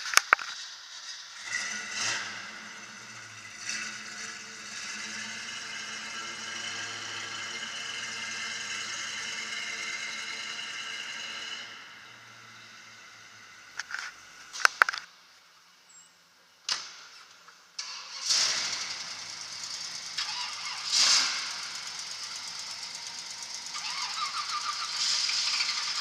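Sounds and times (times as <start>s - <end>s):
car engine running: 0.9s - 15.0s, 18.2s - 26.0s
fast rattling tick: 18.3s - 26.0s.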